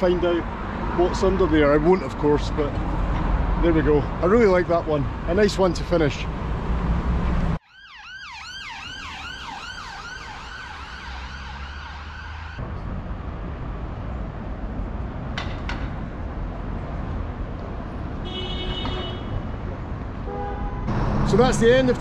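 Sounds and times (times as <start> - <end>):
city traffic noise: 0.0 - 22.0
emergency siren wailing: 7.6 - 12.6.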